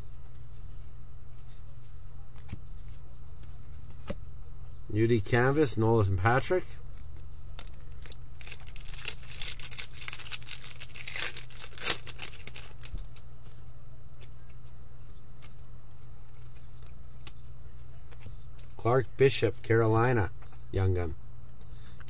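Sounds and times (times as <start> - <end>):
foil wrapper tearing and crinkling: 7.6 - 13.2.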